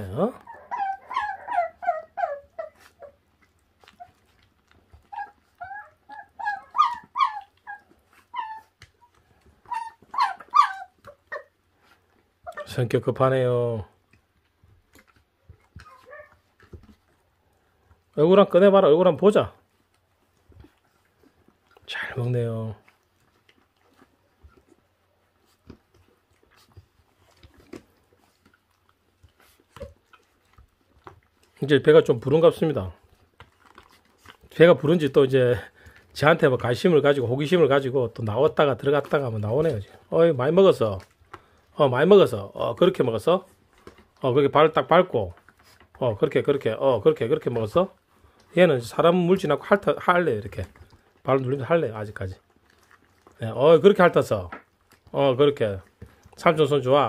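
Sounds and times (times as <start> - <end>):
puppies whining and yipping: 0.0 - 12.8, 14.1 - 18.2, 19.7 - 21.8, 22.8 - 31.6, 32.2 - 36.2, 38.3 - 41.7.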